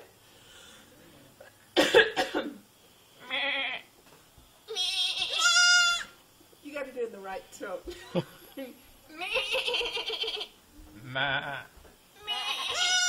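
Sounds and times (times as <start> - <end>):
person coughing: 1.8 - 2.6
goat kid bleating: 3.2 - 3.9, 4.7 - 6.2, 9.1 - 13.0.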